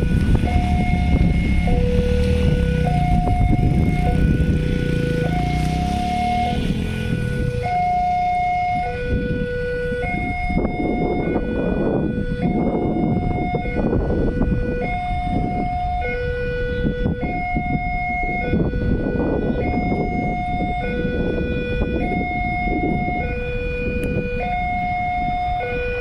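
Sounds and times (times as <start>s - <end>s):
rumbling noise: 0.0s - 7.7s.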